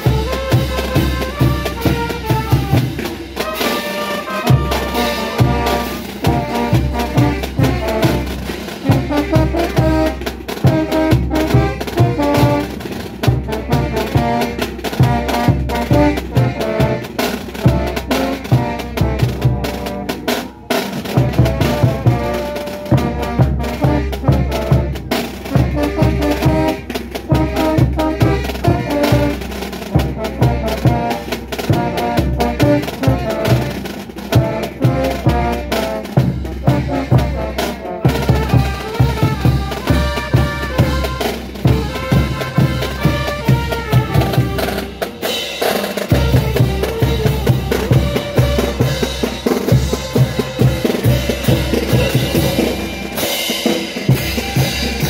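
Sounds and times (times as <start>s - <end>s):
brass band music: 0.0s - 55.0s
drum and snare beat: 0.0s - 55.0s.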